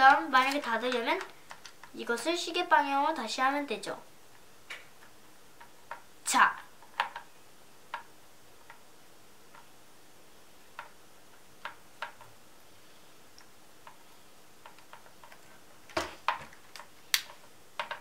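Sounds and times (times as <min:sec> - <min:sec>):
clicks and knocks of toy car: 0:14.6 - 0:18.0.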